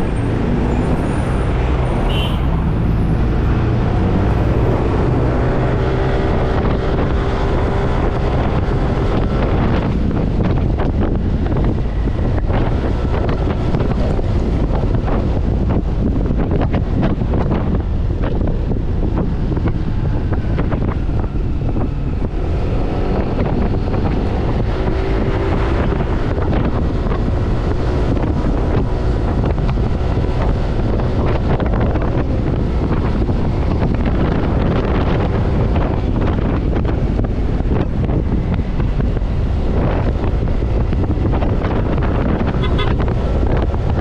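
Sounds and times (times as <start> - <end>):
road noise: 0.0 - 44.0
wind buffeting microphone: 0.0 - 44.0.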